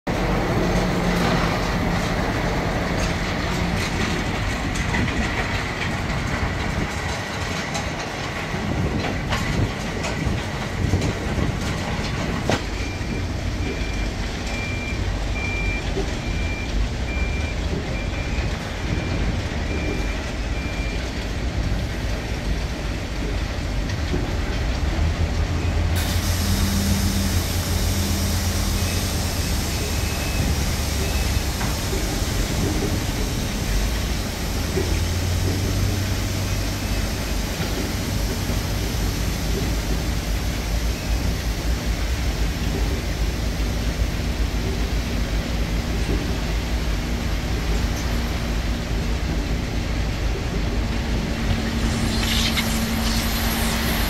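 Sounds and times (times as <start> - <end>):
diesel truck engine running: 0.1 - 54.0
high reversing beeps: 12.7 - 21.0, 26.6 - 33.9, 36.2 - 37.7, 51.2 - 54.0.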